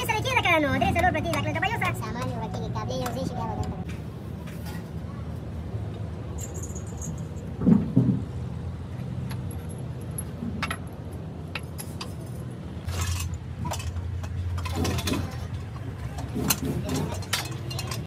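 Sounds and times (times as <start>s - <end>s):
metal tools clinking on engine: 6.2s - 8.2s, 8.9s - 18.0s.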